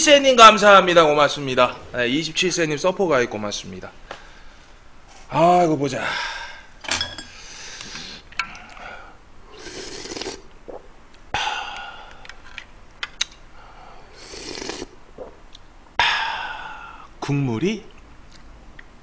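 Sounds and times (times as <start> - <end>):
breathy exhale: 4.1 - 4.8, 6.0 - 6.7, 7.3 - 10.2, 11.3 - 12.3, 13.6 - 14.9, 16.0 - 17.1
person slurping broth: 9.5 - 10.9, 14.0 - 15.4.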